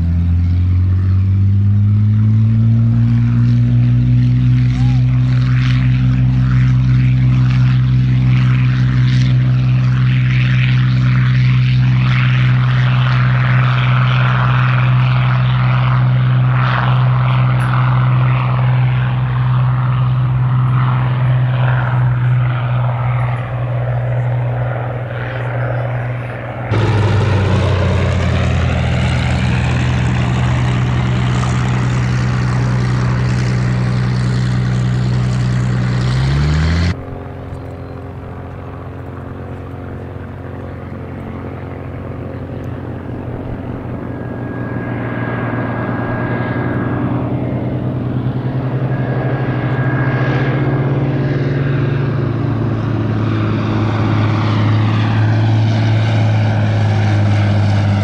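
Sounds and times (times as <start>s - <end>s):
propeller aircraft engine passing: 0.0s - 58.0s.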